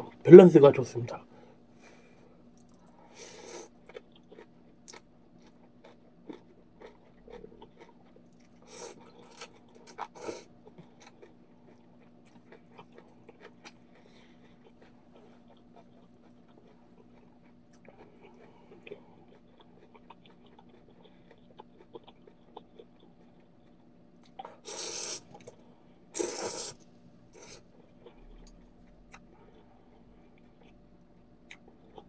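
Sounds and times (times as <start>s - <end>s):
quiet chewing: 2.5s - 32.0s
loud noodle slurps: 24.6s - 25.2s, 26.2s - 26.8s.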